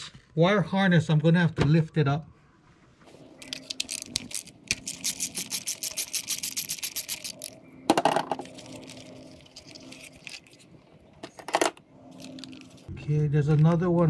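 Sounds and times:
socket ratchet clicking: 0:03.4 - 0:07.6.

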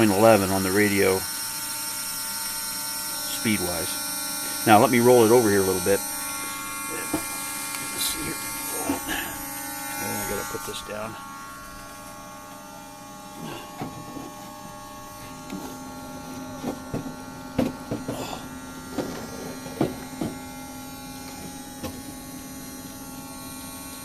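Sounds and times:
low buzz: 0:00.0 - 0:24.0
steady electrical hum: 0:00.0 - 0:24.0
knocks and bumps of handling: 0:16.6 - 0:18.3, 0:18.9 - 0:20.4.

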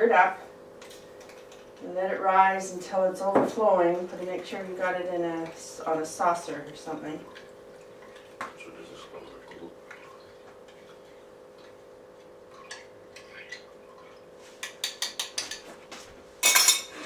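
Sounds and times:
spoon tapping: 0:14.6 - 0:15.6.

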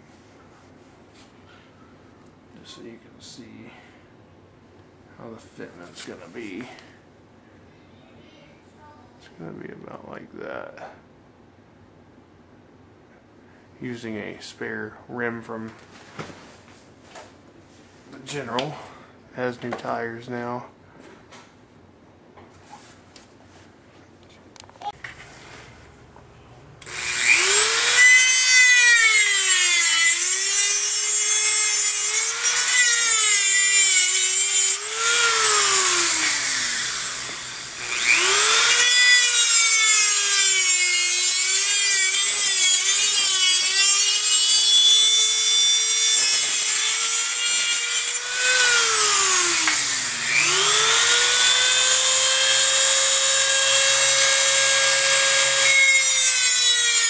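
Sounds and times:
rotary tool cutting sheet metal: 0:26.8 - 0:57.0.

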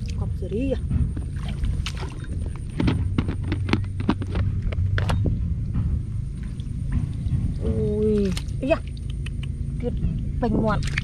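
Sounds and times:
steady low rumble: 0:00.0 - 0:11.0
slaps and splashes in water: 0:01.2 - 0:02.3, 0:10.6 - 0:11.0.

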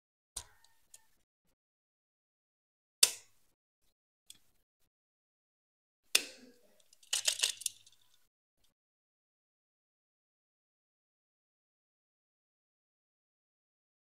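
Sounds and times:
toy truck parts clicking: 0:06.1 - 0:08.3.

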